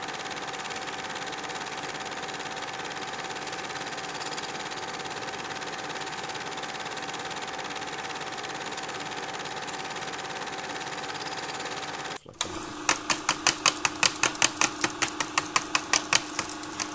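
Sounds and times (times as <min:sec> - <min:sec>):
film projector whirring: 0:00.0 - 0:16.9
rapid even clicking: 0:11.3 - 0:16.9.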